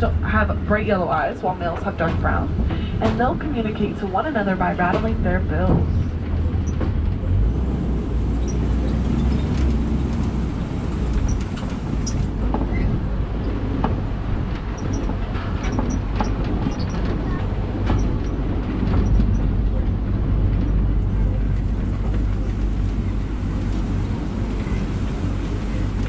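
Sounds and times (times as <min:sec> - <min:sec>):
truck engine and road rumble: 0:00.0 - 0:26.0
knocks and rattles: 0:08.4 - 0:21.0.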